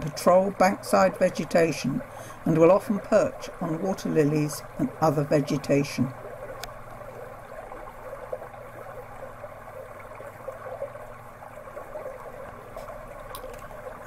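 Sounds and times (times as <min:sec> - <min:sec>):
running water: 0:00.0 - 0:14.0.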